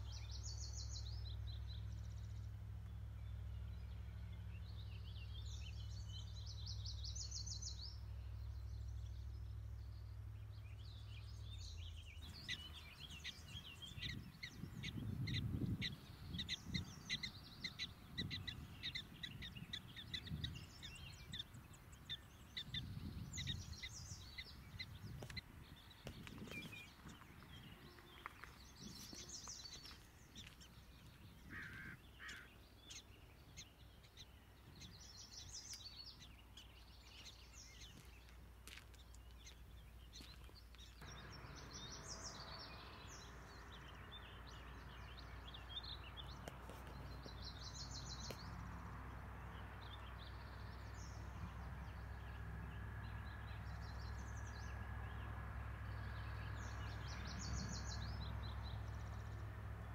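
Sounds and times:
wind on microphone: 12.2 - 31.6
high bird trilling: 31.4 - 33.7.

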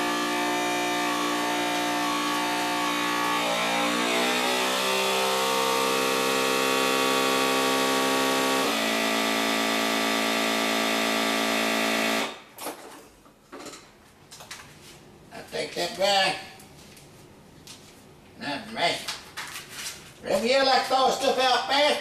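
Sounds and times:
vacuum sealer pump humming: 0.0 - 12.4.

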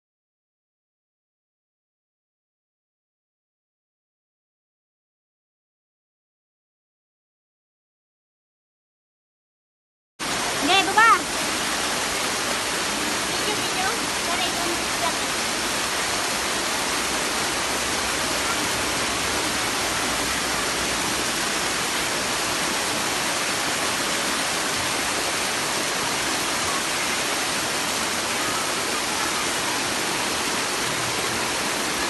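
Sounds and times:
waterfall rushing over rocks: 10.2 - 32.0.

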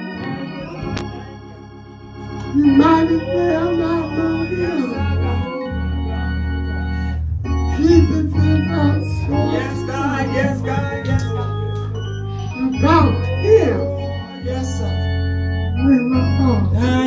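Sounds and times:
organ playing chords: 0.0 - 17.0
person singing: 2.6 - 6.4, 7.7 - 11.5, 12.5 - 15.0.

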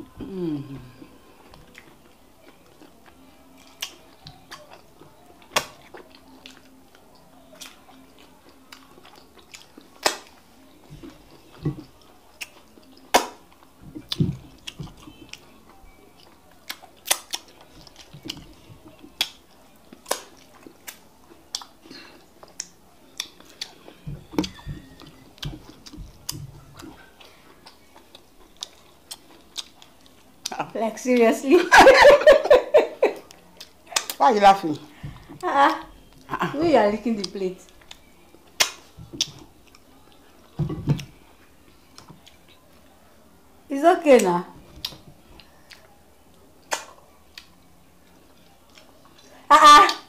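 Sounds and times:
wet lip smacks: 46.6 - 47.5
mouth clicks: 46.7 - 47.0.

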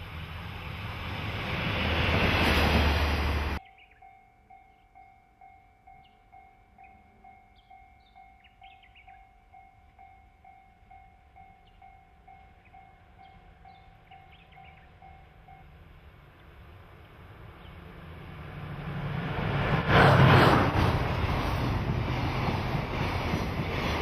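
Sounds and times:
warning bell ringing: 3.6 - 15.8.

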